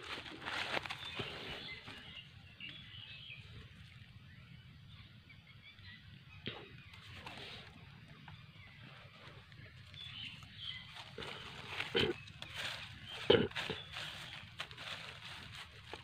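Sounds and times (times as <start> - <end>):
dry leaves rustling: 0.0 - 4.0, 6.9 - 8.2, 8.8 - 16.0
faint bird chirps: 0.4 - 15.6.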